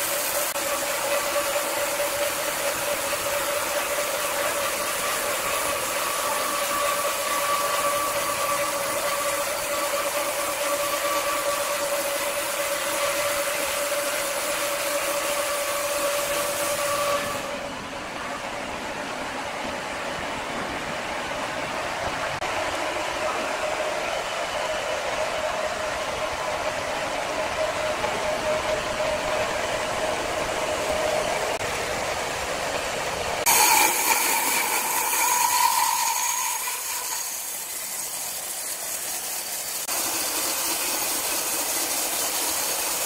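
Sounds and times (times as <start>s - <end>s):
band sawmill humming and whining: 0.0s - 43.0s.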